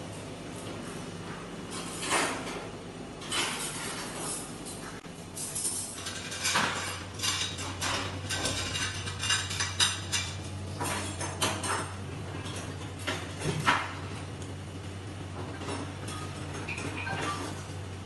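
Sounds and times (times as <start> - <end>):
plates and cutlery clattering: 1.7 - 13.9, 15.6 - 17.7.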